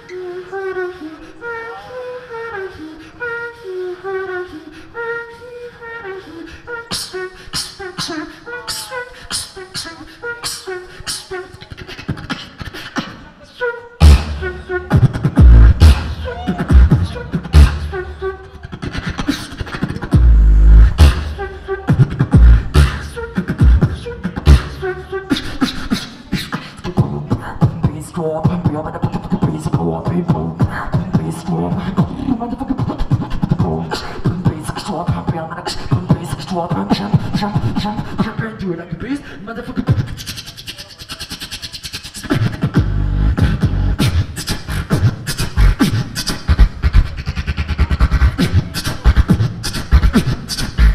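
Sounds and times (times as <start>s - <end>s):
beatboxing drum sounds: 6.8s - 13.3s, 14.0s - 50.9s
vocal bass line: 14.0s - 50.9s.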